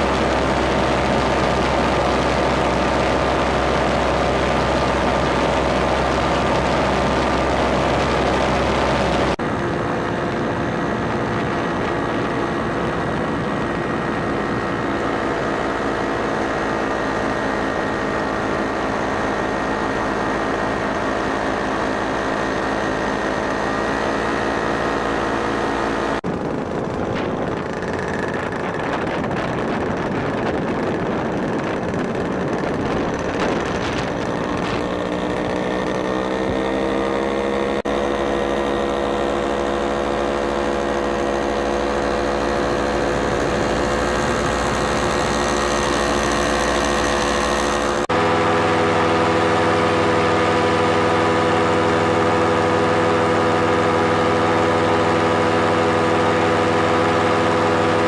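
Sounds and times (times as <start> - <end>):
paramotor engine and propeller: 0.0 - 58.0
wind rush: 26.2 - 36.8, 41.7 - 48.0.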